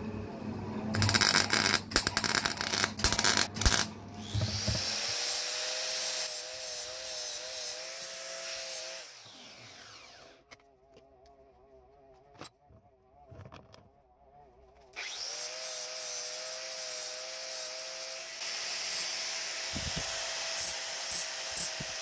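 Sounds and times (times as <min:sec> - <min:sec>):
welding arc crackling: 0:00.9 - 0:03.9.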